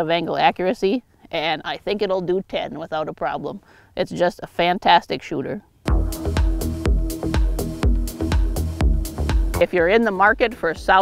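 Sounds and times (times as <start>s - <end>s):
electronic music with heavy bass: 5.9s - 11.0s.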